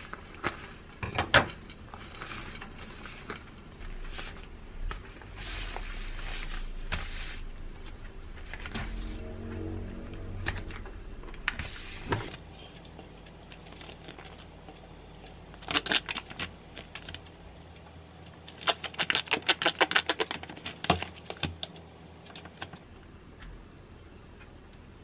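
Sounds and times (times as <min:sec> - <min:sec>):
plastic rustle: 0:00.0 - 0:09.1, 0:11.6 - 0:17.4, 0:18.2 - 0:22.9.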